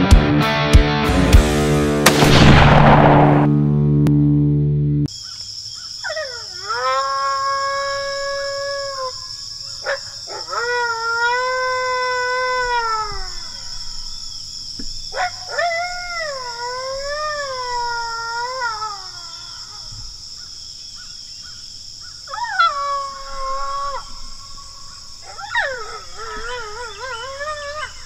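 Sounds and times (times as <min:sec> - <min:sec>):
coyote howls from predator call: 0:06.0 - 0:14.4, 0:15.0 - 0:20.0, 0:22.2 - 0:28.0.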